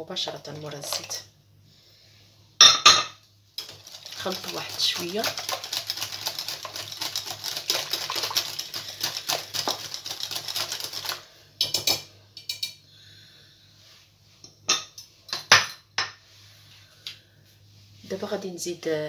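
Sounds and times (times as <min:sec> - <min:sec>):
whisk clattering in glass bowl: 0:00.5 - 0:01.2, 0:03.6 - 0:12.0.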